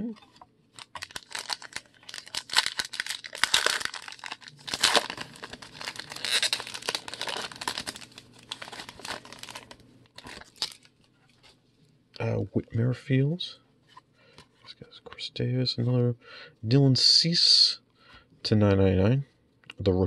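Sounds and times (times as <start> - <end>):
foil wrapper tearing and crinkling: 0.8 - 10.9.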